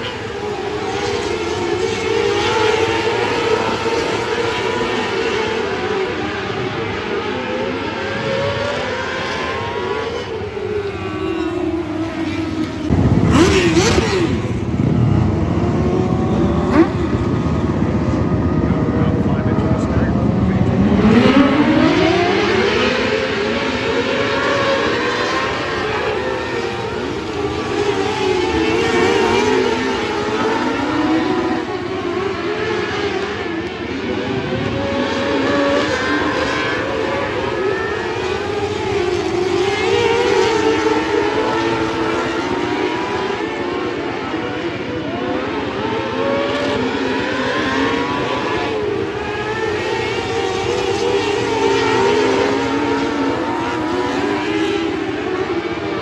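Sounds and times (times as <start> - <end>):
race cars revving past: 0.0 - 56.0.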